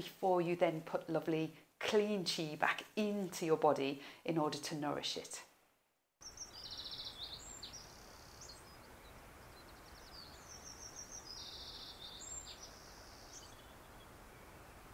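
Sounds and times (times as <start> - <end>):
small birds chirping: 6.2 - 14.9
steady background hiss: 6.2 - 14.9.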